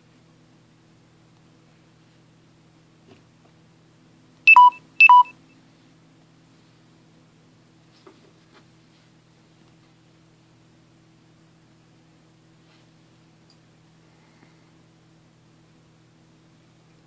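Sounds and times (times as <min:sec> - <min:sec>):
faint steady hum: 0:00.0 - 0:17.0
short electronic beeps: 0:04.5 - 0:05.4.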